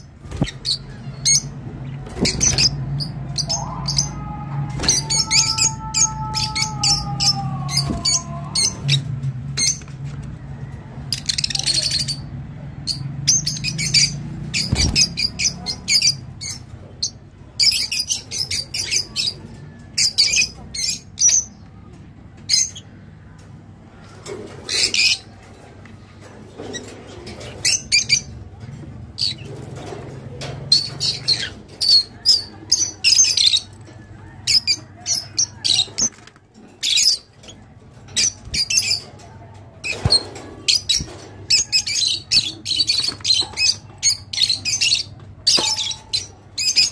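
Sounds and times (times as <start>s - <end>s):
lovebirds chirping and squawking: 0.0s - 46.9s.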